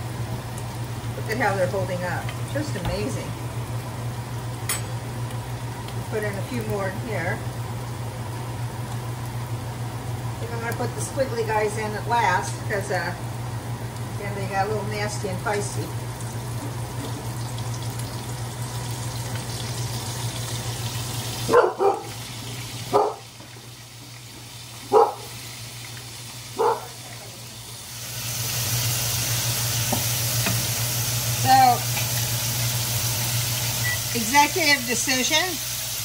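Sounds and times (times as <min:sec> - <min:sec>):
steady low hum: 0:00.0 - 0:22.0
food sizzling in hot oil: 0:00.0 - 0:36.0.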